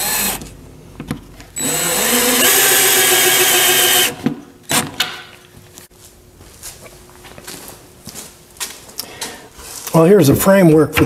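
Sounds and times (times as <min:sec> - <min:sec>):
cordless drill driving screw: 0:01.6 - 0:04.8.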